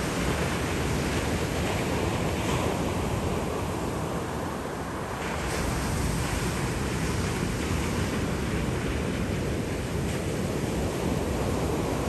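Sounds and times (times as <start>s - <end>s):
surf washing up a beach: 0.0s - 12.0s.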